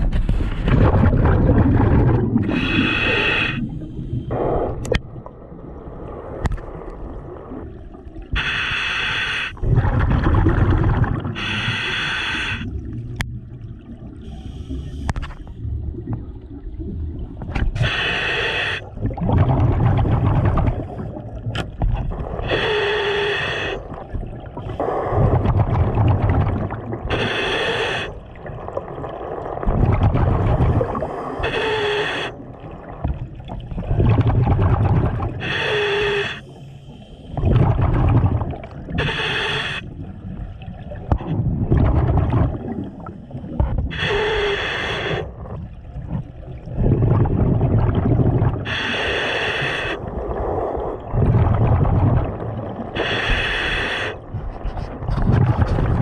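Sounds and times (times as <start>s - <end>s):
exhaled bubbles bubbling: 0.0s - 8.4s, 9.6s - 18.0s, 18.8s - 22.7s, 23.5s - 27.3s, 27.9s - 44.4s, 45.0s - 49.1s, 49.7s - 53.5s, 54.1s - 56.0s
scuba regulator inhalation hiss: 2.5s - 3.8s, 8.4s - 9.6s, 11.4s - 12.8s, 17.8s - 18.9s, 22.4s - 23.9s, 27.1s - 28.2s, 31.0s - 32.4s, 35.4s - 37.4s, 39.0s - 39.9s, 43.9s - 45.3s, 48.7s - 50.0s, 53.0s - 54.2s.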